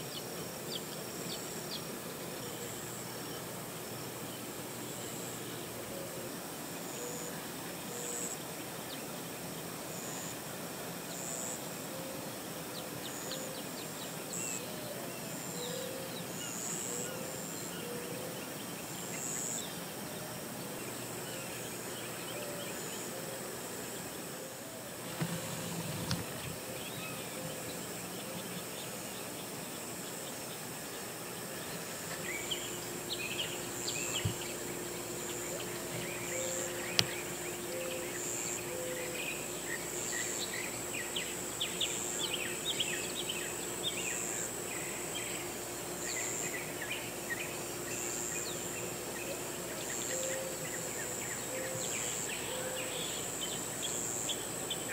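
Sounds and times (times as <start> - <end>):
steady hiss: 0.0 - 54.9
high insect chirps: 6.6 - 54.9.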